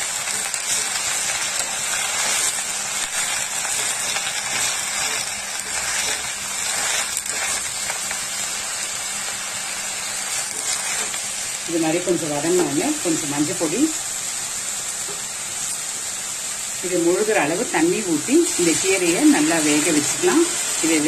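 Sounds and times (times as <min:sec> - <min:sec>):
spatula stirring in pan: 0:00.0 - 0:09.4
leaves sizzling in frying pan: 0:00.0 - 0:21.0.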